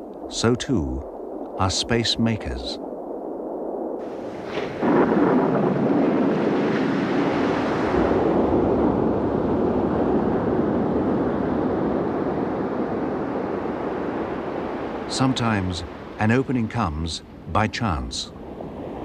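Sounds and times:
surging sea water rushing: 0:00.0 - 0:19.0.

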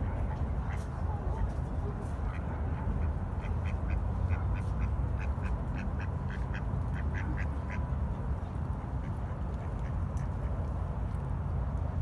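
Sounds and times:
ducks quacking: 0:02.2 - 0:07.9.

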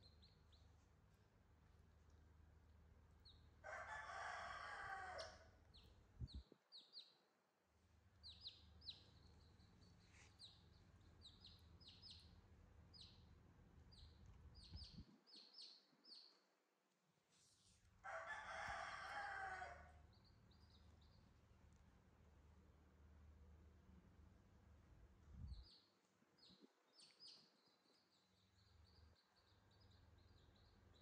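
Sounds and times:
chick peeping: 0:00.0 - 0:00.8, 0:05.1 - 0:07.2, 0:08.2 - 0:13.3, 0:13.9 - 0:16.4, 0:20.0 - 0:21.3, 0:25.4 - 0:31.0
rustling noise: 0:17.2 - 0:18.0.

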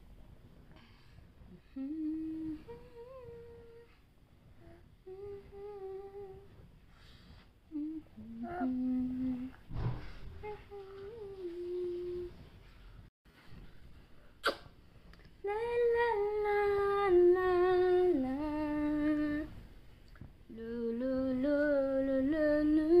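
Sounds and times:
woman humming a slow tune: 0:01.5 - 0:06.6, 0:07.7 - 0:09.7, 0:10.4 - 0:12.4, 0:15.4 - 0:19.5, 0:20.5 - 0:23.0.

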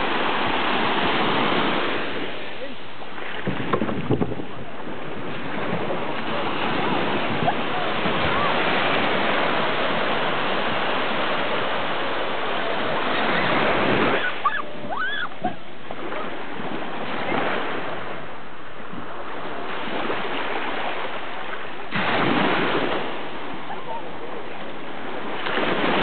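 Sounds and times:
waves washing on sand: 0:00.0 - 0:26.0
short high calls: 0:14.2 - 0:15.4.

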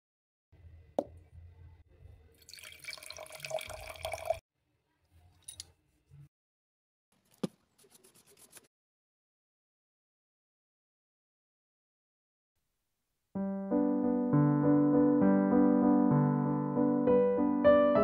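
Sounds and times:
water poured into glass jar: 0:02.4 - 0:04.4
brush strokes on paper: 0:07.2 - 0:08.7.

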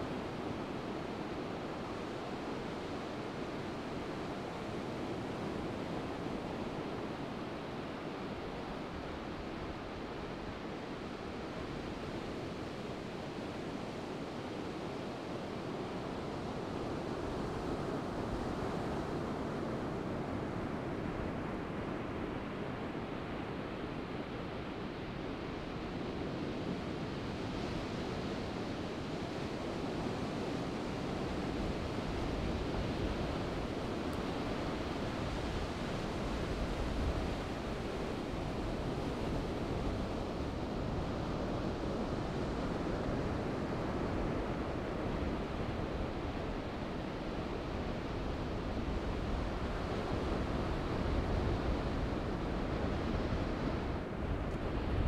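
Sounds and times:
wind: 0:00.0 - 0:55.0
wind gusts rumbling on microphone: 0:29.4 - 0:55.0.

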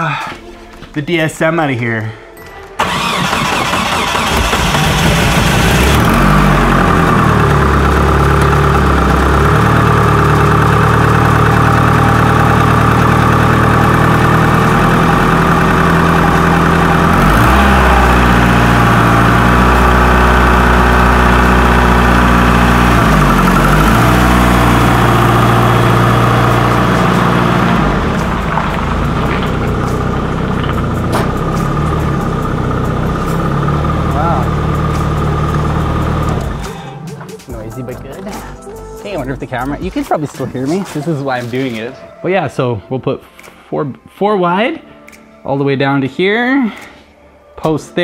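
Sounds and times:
turbocharged car engine running: 0:02.8 - 0:37.0.

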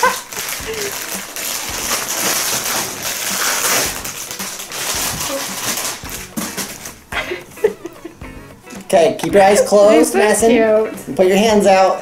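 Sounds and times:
plastic packaging crinkling: 0:00.0 - 0:07.1.

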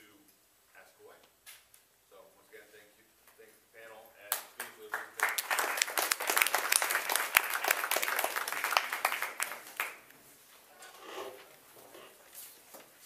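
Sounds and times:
audience applauding: 0:04.6 - 0:10.1.

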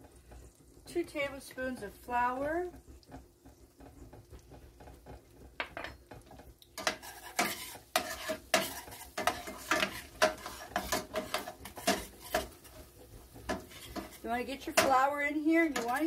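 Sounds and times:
butter sizzling: 0:00.0 - 0:16.0
metal whisk scraping a pan: 0:06.3 - 0:16.0.

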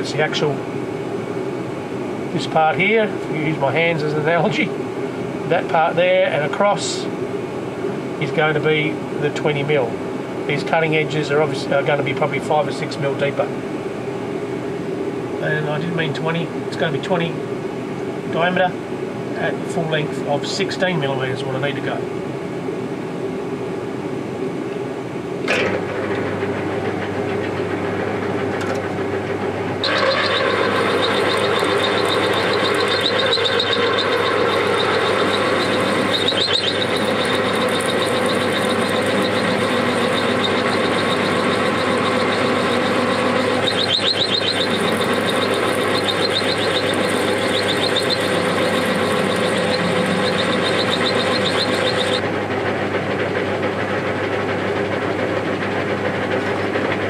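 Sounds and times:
lathe motor humming: 0:25.6 - 0:57.0
drill cutting into metal: 0:29.8 - 0:52.2.

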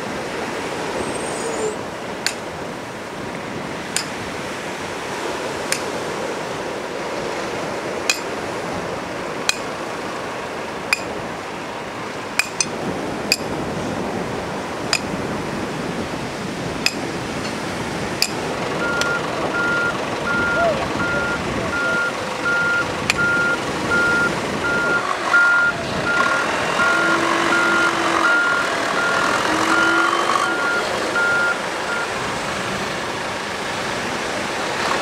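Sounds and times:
surf: 0:00.0 - 0:35.0
sledgehammer striking steel stakes: 0:02.2 - 0:02.4, 0:04.0 - 0:04.2, 0:08.1 - 0:08.3, 0:09.5 - 0:09.7, 0:10.9 - 0:11.1, 0:12.4 - 0:13.5, 0:16.8 - 0:17.1, 0:18.2 - 0:18.4.

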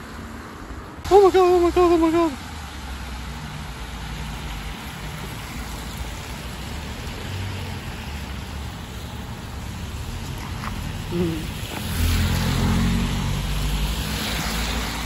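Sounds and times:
tyres hissing on wet road: 0:00.0 - 0:15.0.

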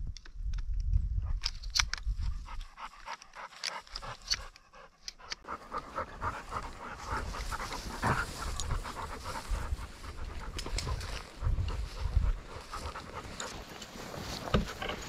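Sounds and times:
dog panting hard: 0:02.2 - 0:14.8
footsteps through grass and brush: 0:05.7 - 0:15.0.

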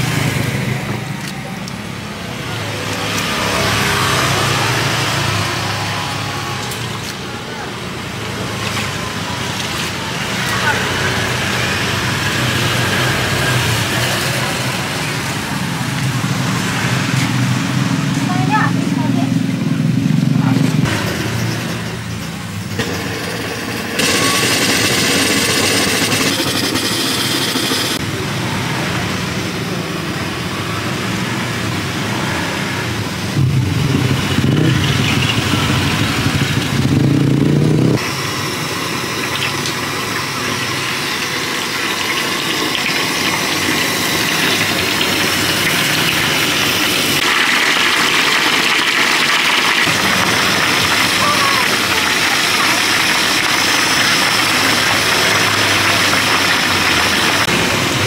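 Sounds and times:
motor engine running: 0:00.0 - 0:29.2, 0:32.8 - 0:58.0
hot oil sizzling: 0:02.4 - 0:18.4, 0:30.2 - 0:58.0.

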